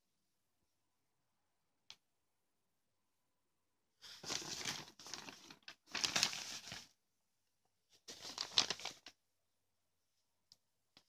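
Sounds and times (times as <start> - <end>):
paper pages rustling: 4.0 - 6.9, 8.0 - 9.2.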